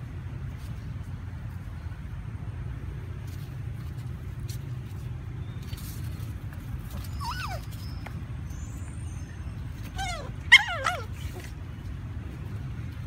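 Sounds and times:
puppy whining: 6.8 - 11.8.

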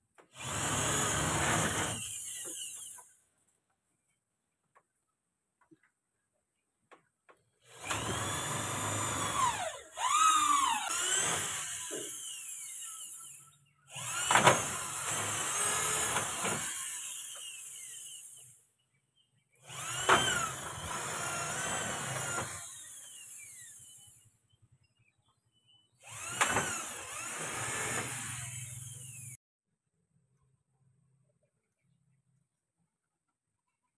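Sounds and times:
power drill drilling ceiling: 0.2 - 3.2, 7.6 - 18.6, 19.6 - 24.3, 26.0 - 29.4.

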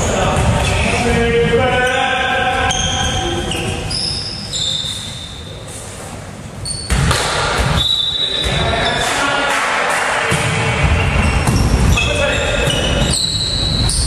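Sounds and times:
sneakers squeaking on wooden floor: 0.0 - 5.8, 6.6 - 9.3, 10.3 - 14.0
volleyball bouncing: 6.8 - 13.2.

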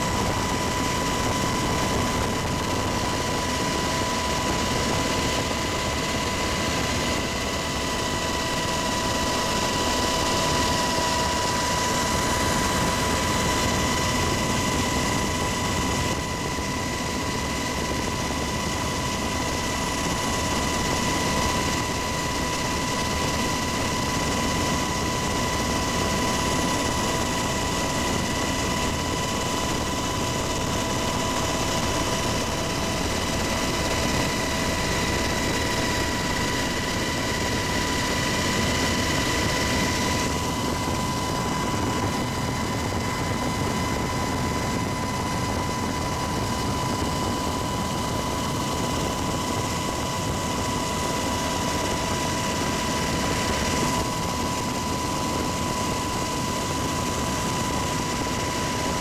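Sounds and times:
helicopter cabin rotor and engine rush: 0.0 - 59.0.

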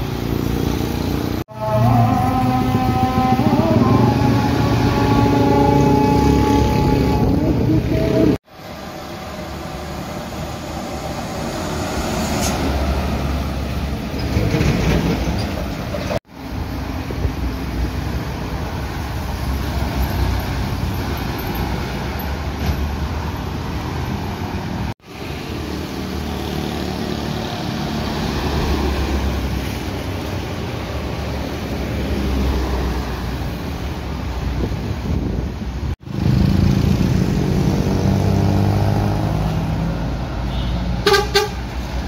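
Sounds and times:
vehicles driving past: 0.0 - 42.0.

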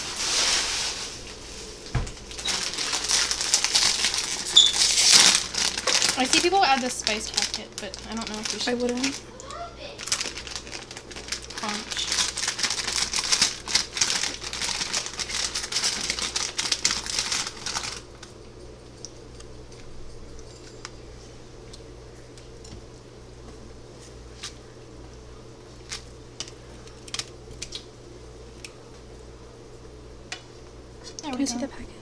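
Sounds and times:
plastic packet crinkling: 2.2 - 18.3, 25.8 - 27.9.

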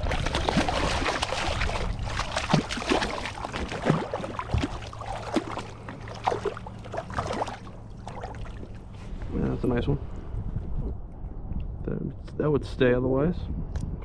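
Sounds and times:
fish thrashing at surface: 0.0 - 8.8
water splashing and gurgling: 0.0 - 9.0.

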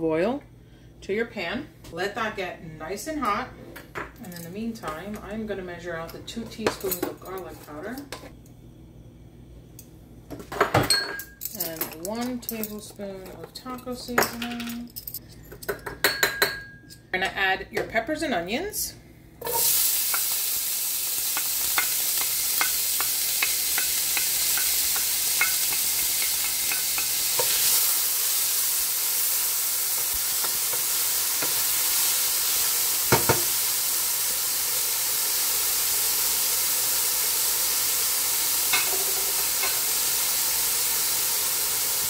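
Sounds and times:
vegetables sizzling in oil: 19.4 - 42.0
spoon knocking on pan: 33.1 - 33.5.

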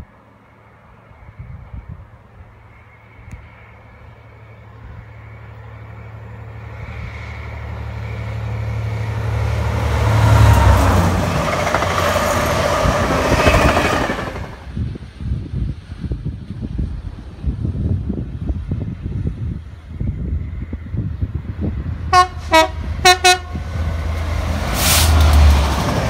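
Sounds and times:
diesel locomotive engine drone: 0.0 - 26.0
train wheels rumbling on rails: 6.6 - 26.0.

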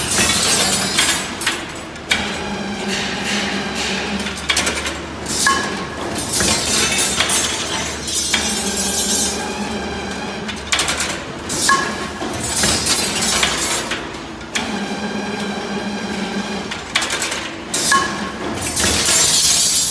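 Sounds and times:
machine motor humming: 8.0 - 19.3.

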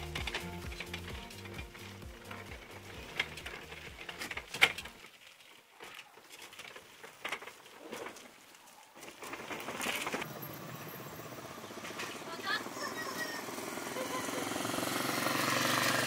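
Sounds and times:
background music: 0.0 - 5.0
toy car motor running: 0.0 - 5.1, 9.6 - 16.0.

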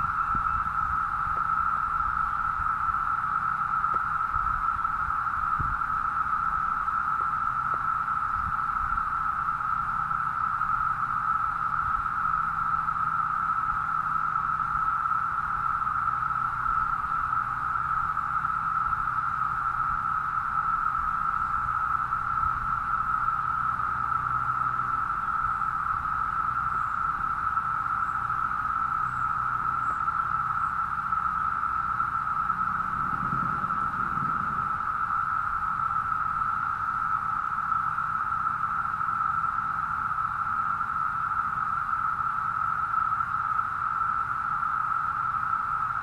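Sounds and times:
cicadas droning: 0.0 - 46.0.

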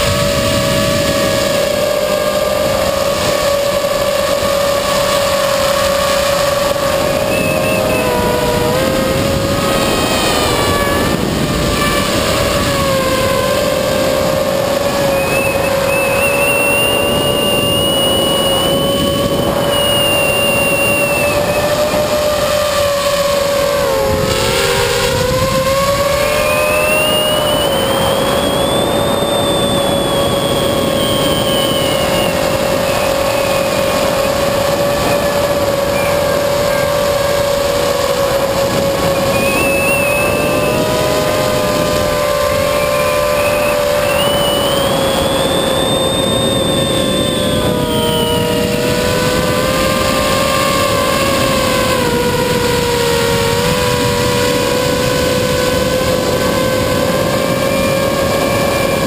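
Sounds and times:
drone motors whining: 0.0 - 59.0.

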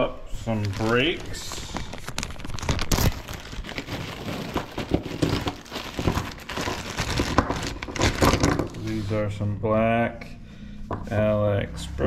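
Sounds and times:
plastic bag crinkling: 0.3 - 9.1.

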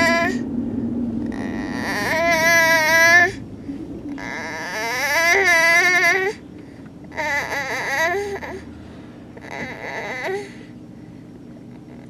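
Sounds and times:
child crying drowsily: 0.0 - 0.4, 1.3 - 3.4, 4.1 - 6.4, 7.1 - 8.7, 9.4 - 10.7.

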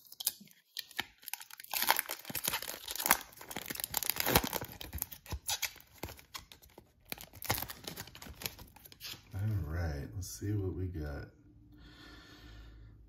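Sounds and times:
foil wrapper tearing and crinkling: 0.0 - 9.3.

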